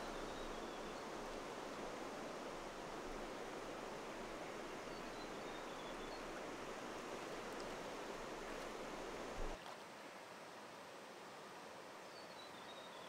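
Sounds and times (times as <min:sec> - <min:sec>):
river water rushing over stones: 0:00.0 - 0:10.0.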